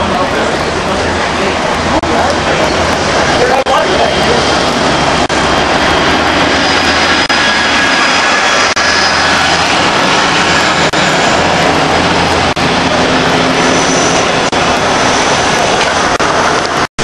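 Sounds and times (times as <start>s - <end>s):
buses and van passing: 0.0s - 17.0s.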